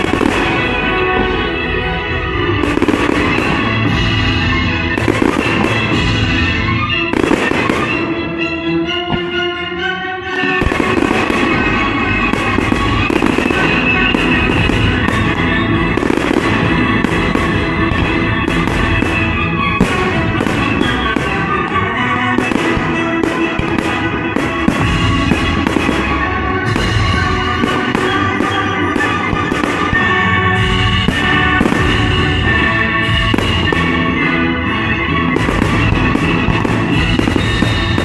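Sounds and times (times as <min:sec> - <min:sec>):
fireworks bangs: 0:00.0 - 0:08.4, 0:10.4 - 0:38.0
classical music: 0:00.0 - 0:38.0.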